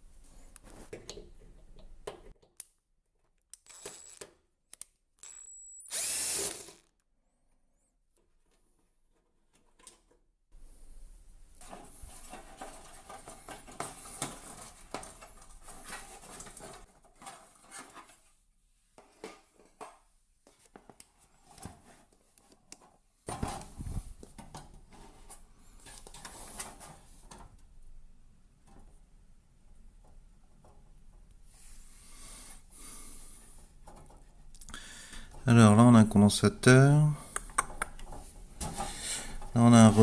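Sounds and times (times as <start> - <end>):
metal and plastic parts clattering: 11.6 - 18.3.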